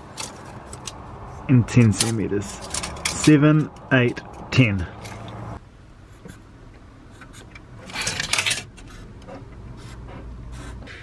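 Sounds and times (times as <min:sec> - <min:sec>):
marker scratching on metal floor: 0:08.8 - 0:11.0.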